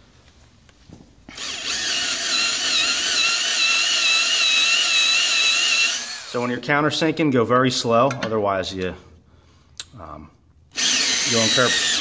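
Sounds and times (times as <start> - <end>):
cordless drill whine: 1.3 - 6.4, 10.7 - 12.0.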